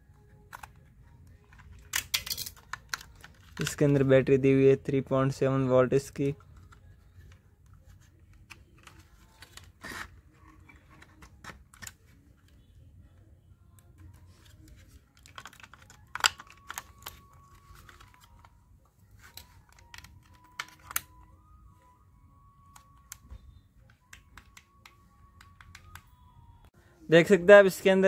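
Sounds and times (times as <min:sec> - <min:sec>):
plastic clicks and rattles: 0:15.1 - 0:18.5.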